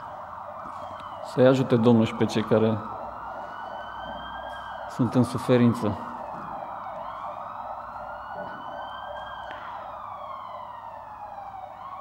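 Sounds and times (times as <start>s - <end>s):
ambulance siren wailing: 0.0s - 12.0s.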